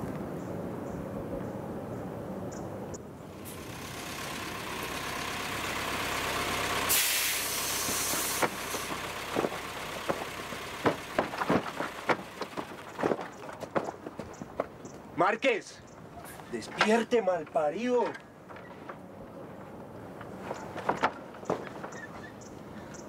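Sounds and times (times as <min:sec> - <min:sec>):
rushing hiss: 0:06.6 - 0:09.0.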